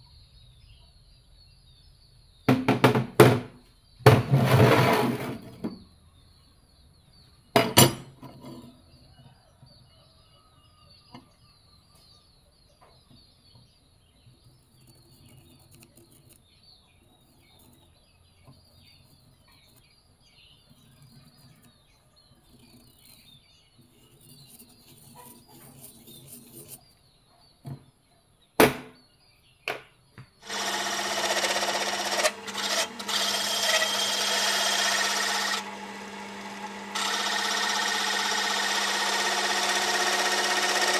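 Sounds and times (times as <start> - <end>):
drill press grinding steel: 4.3 - 5.7, 30.4 - 40.9
marker scratching on steel: 22.5 - 26.9.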